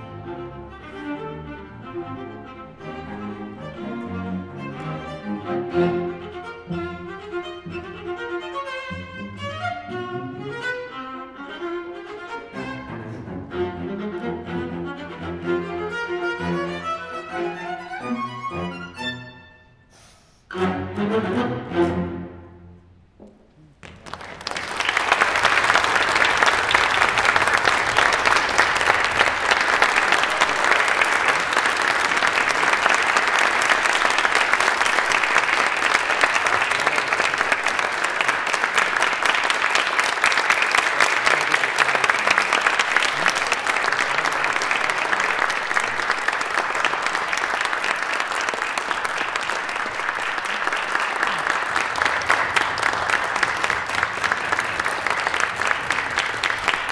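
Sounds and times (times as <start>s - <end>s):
audience applauding: 23.7s - 56.9s.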